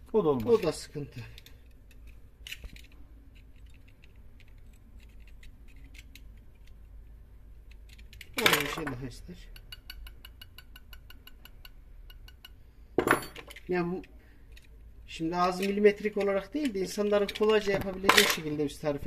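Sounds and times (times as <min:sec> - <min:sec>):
metallic clicks of hand tools: 0:07.7 - 0:12.6.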